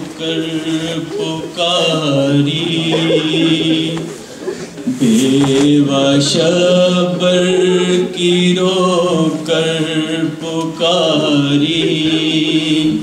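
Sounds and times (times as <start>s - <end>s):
man chanting a lament: 5.0s - 13.0s.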